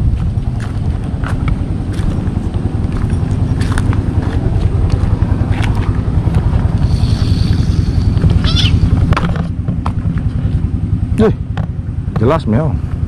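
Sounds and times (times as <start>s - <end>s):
steady low rumble: 0.0s - 13.0s
cat yowling: 8.4s - 8.9s.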